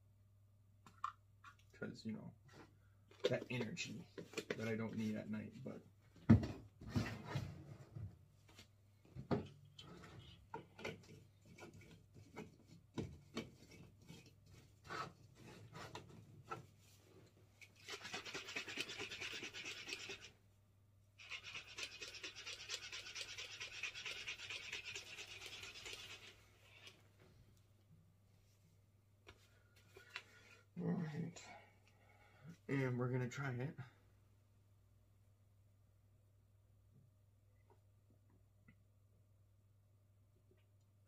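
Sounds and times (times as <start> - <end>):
shaker cup rattling: 17.8 - 20.3, 21.2 - 26.9.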